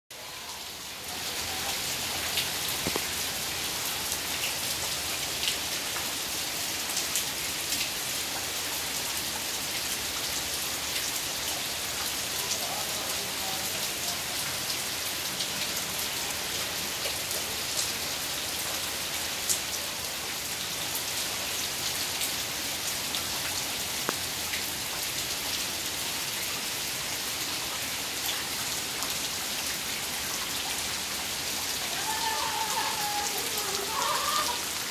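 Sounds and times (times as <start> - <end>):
heavy rain pouring: 0.1 - 34.9
raindrops ticking close by: 0.8 - 9.2, 9.9 - 26.6.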